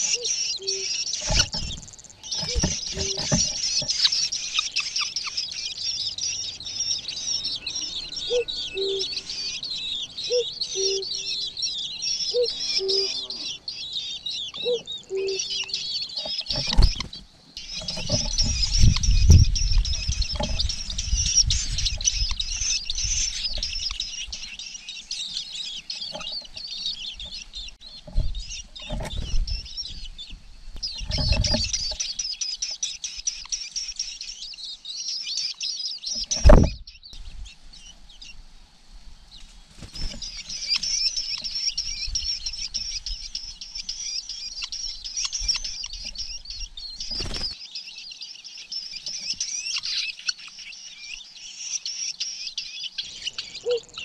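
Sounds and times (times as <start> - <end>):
nestlings chirping: 0.0 - 38.4, 39.1 - 54.0
rustles and thumps in nest: 1.2 - 4.2, 16.2 - 24.4, 26.0 - 32.2, 36.1 - 36.8, 39.5 - 41.6.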